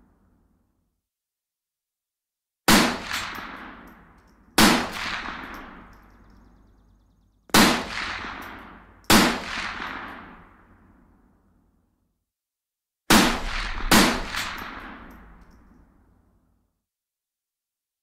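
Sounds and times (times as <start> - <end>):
rifle shots echoing: 2.7 - 6.6, 7.5 - 10.7, 13.1 - 15.4.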